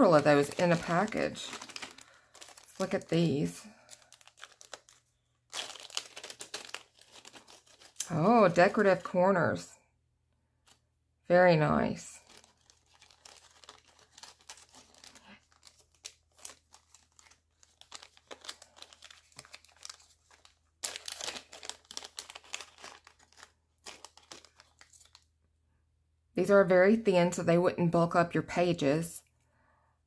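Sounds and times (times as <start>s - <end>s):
plastic bags crinkling: 0.0s - 9.1s, 12.2s - 25.3s.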